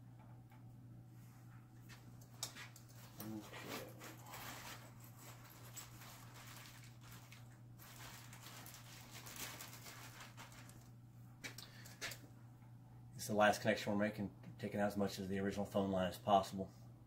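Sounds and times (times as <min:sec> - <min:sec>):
faint electrical hum: 0:00.0 - 0:17.0
rustling and handling noise: 0:01.1 - 0:12.4.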